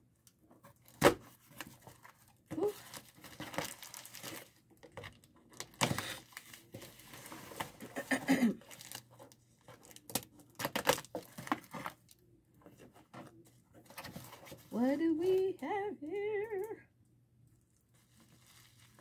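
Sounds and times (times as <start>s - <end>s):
packaging crinkling and tearing: 0.8s - 12.2s, 18.0s - 19.0s.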